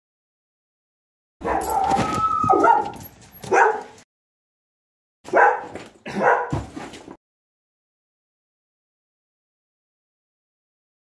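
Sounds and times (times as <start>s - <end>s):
dog barking: 1.4s - 1.9s, 2.5s - 4.0s, 5.3s - 6.7s.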